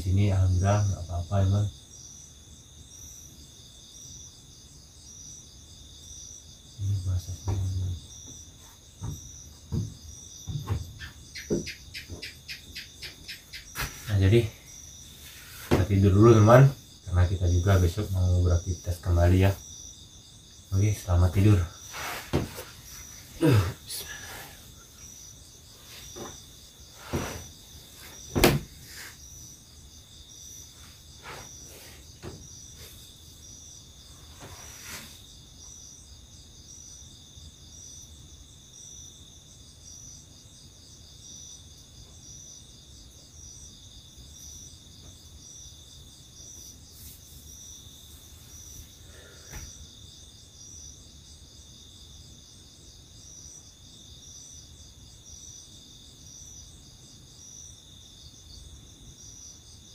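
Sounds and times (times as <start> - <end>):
night insects chirping: 0.0 - 59.9
knocks on wooden floor: 9.0 - 12.3, 22.3 - 22.6, 28.3 - 28.7, 32.2 - 32.5.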